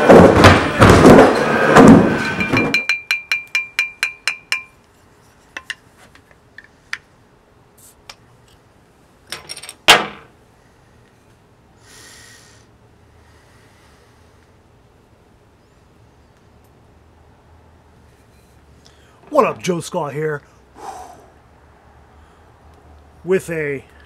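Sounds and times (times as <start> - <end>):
loud noise: 0.0 - 2.8
bottle opener metallic clinks: 2.2 - 4.8.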